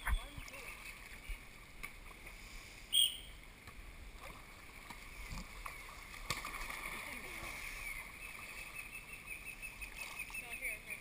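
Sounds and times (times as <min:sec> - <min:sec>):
pool water sloshing and lapping: 0:00.0 - 0:02.7, 0:03.5 - 0:11.0
water slaps: 0:03.6 - 0:07.6.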